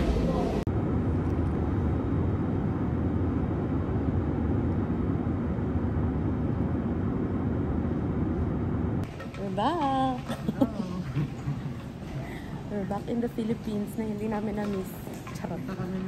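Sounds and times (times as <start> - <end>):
jet engine and air rumble in cabin: 0.0 - 10.9.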